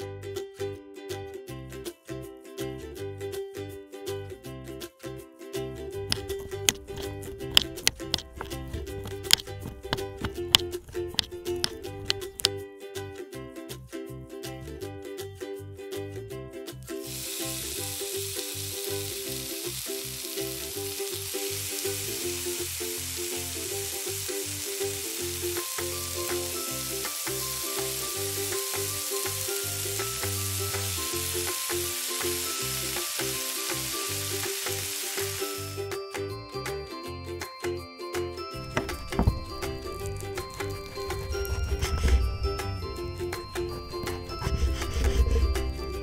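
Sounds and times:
steak sizzling on a grill: 6.1s - 12.5s, 17.0s - 36.0s, 38.6s - 42.3s.

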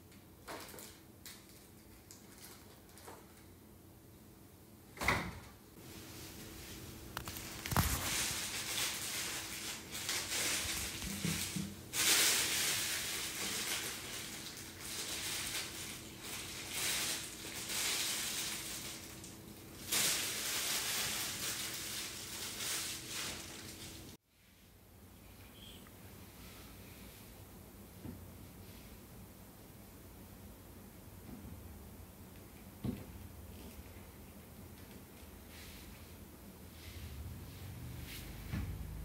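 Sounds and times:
plastic bags crinkling: 0.5s - 3.4s, 6.4s - 24.2s.

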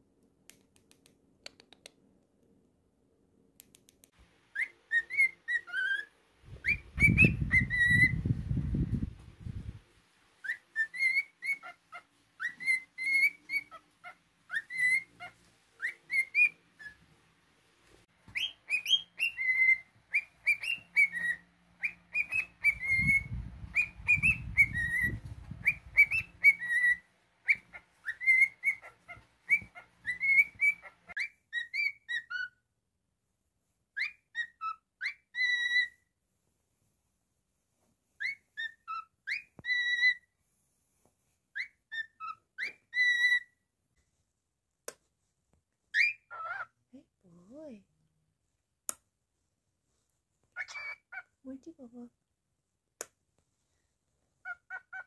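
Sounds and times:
cockatiel whistling a tune: 4.5s - 8.4s, 10.4s - 17.0s, 18.3s - 32.6s, 33.9s - 36.0s, 38.2s - 40.3s, 41.5s - 43.6s, 45.9s - 46.7s, 50.6s - 51.2s
low muffled noise: 6.4s - 10.3s.

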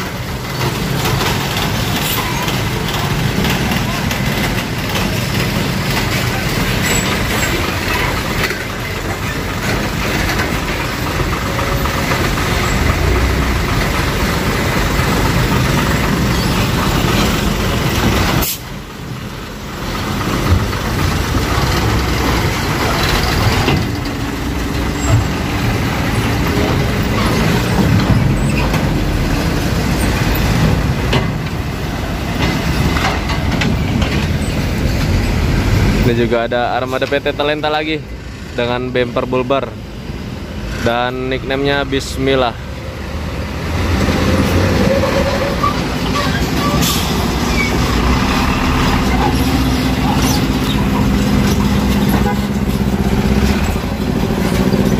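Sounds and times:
heavy trucks driving past: 0.0s - 54.9s.

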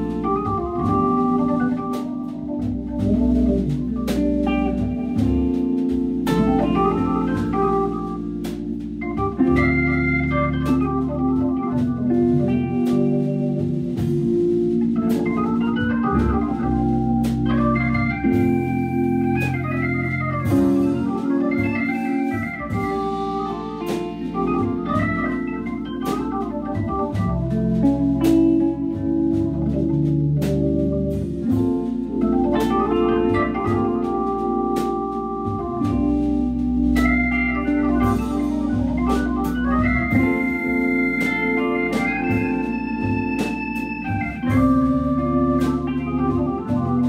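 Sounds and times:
drums and cymbals: 0.0s - 47.0s
organ playing jazz: 0.0s - 47.0s.

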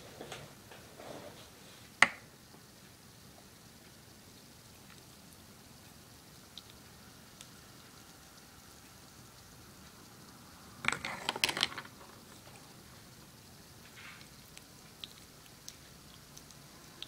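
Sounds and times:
plastic spoons clattering: 10.8s - 12.0s.

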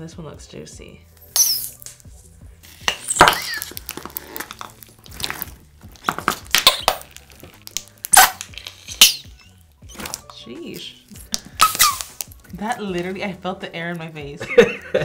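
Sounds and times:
slime squelching: 2.7s - 10.3s
slime air pops: 11.3s - 12.3s.

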